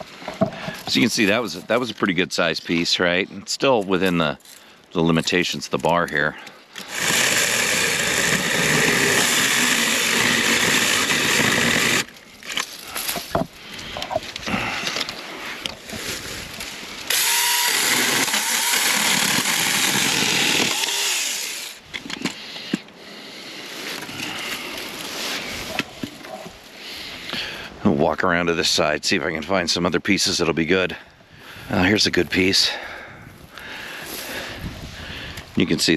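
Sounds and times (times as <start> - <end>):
dry brush rustling and crackling: 3.8 - 17.2, 23.5 - 27.0
electric chainsaw cutting branches: 6.8 - 12.8, 16.0 - 22.1.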